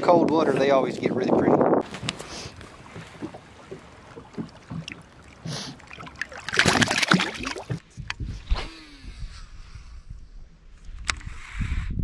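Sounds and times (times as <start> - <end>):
water lapping: 1.8 - 7.8
fish splashing in water: 1.9 - 7.8.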